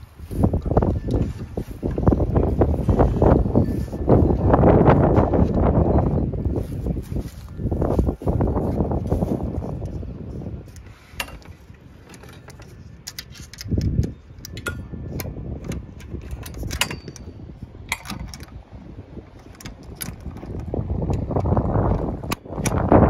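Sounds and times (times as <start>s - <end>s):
wind buffeting microphone: 0.0s - 23.0s
metallic latch and chain rattles: 10.8s - 22.8s.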